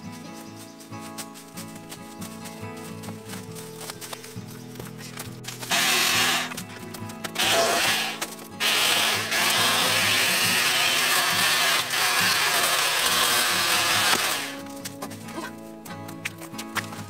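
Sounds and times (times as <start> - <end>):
background music: 0.0 - 17.0
electric chainsaw cutting bamboo: 5.6 - 6.6, 7.4 - 14.6.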